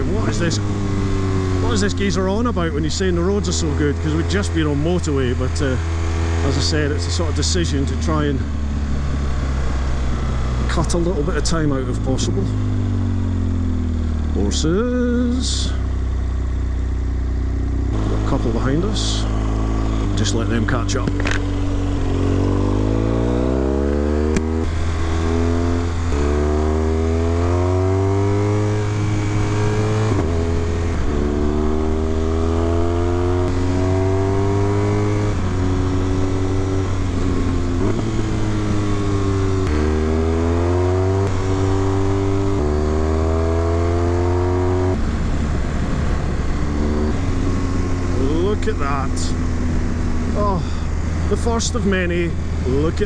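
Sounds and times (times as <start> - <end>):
motorcycle engine accelerating: 0.0 - 53.0
wind rushing over microphone: 17.9 - 53.0.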